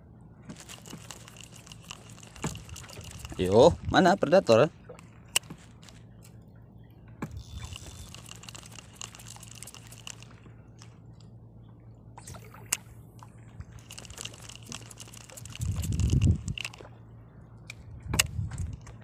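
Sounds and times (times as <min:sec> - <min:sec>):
low steady hum: 0:00.0 - 0:19.0
water lapping against boat: 0:00.4 - 0:19.0
fishing reel clicks: 0:00.6 - 0:03.6, 0:07.3 - 0:10.9, 0:13.8 - 0:16.9.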